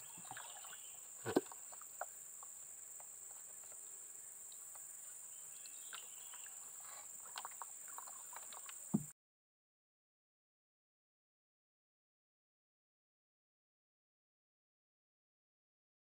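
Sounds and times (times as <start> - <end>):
insect chorus drone: 0.0 - 9.1.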